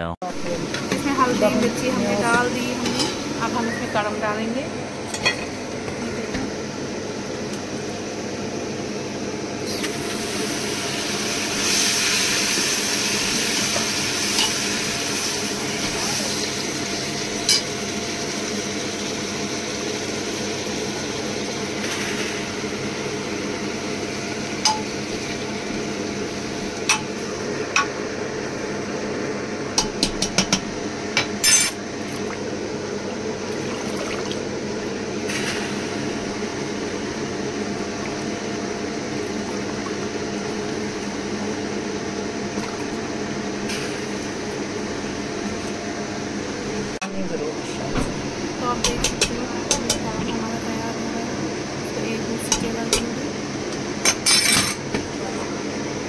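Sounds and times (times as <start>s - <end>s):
steady hum: 0.0s - 56.0s
hot oil hissing: 7.0s - 29.2s, 32.4s - 42.2s.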